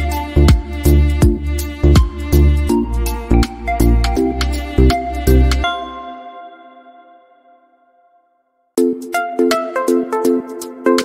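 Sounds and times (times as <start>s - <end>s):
music beat over deep bass: 0.0s - 5.6s.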